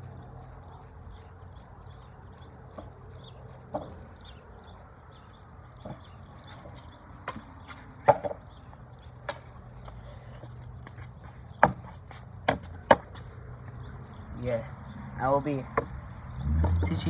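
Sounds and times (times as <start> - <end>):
steady low hum: 0.0 - 15.3
sharp knocks and taps: 10.8 - 13.8, 15.7 - 16.0.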